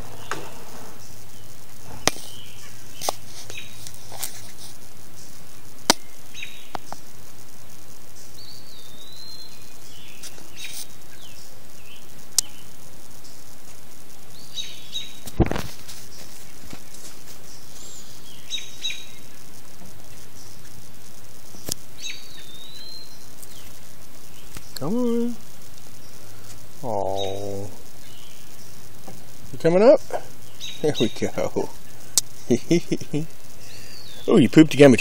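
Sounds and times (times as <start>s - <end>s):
outdoor ambience: 0.0s - 35.0s
high bird chirps: 17.4s - 19.4s, 21.6s - 24.9s, 30.3s - 31.5s.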